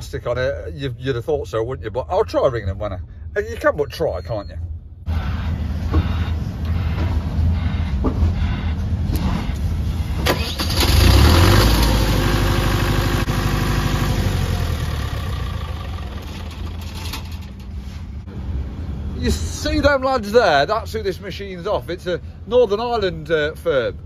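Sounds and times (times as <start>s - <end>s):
diesel generator engine running: 5.0s - 19.2s.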